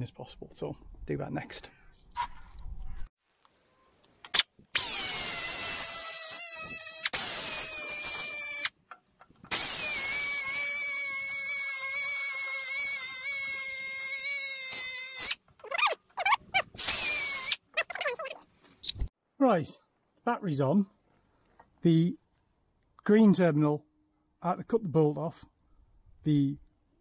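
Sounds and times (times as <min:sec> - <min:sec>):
air grinder whining: 0:09.5 - 0:15.4.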